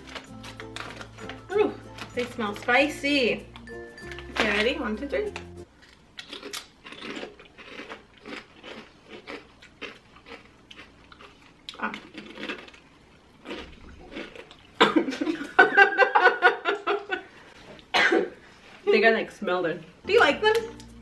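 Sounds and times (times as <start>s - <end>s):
crunching potato chips: 0.0s - 14.8s
person coughing: 14.8s - 15.2s, 17.9s - 18.4s.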